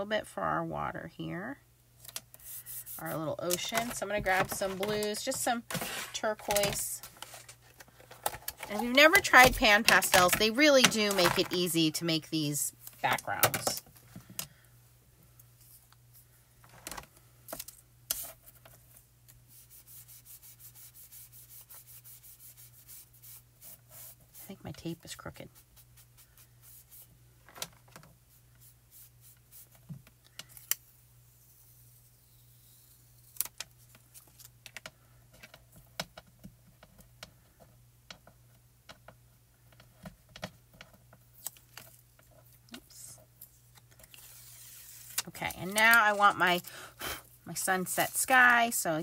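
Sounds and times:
masking tape peeling and pressing: 44.0s - 46.2s.

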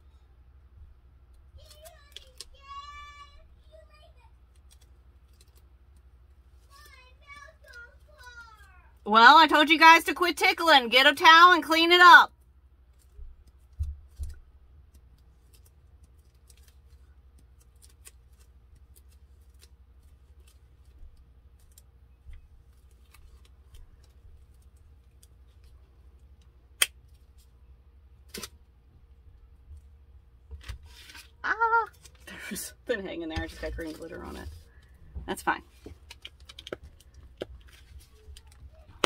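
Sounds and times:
craft supplies clicking and tapping: 35.9s - 37.7s.

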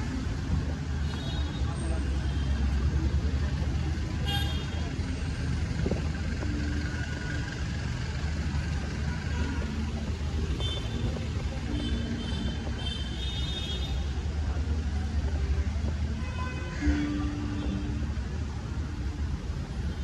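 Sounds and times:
traffic rumble: 0.0s - 20.0s.

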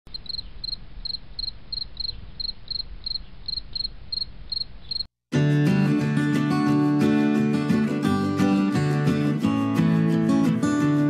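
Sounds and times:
cricket chirping: 0.1s - 5.1s
music: 5.3s - 11.0s.

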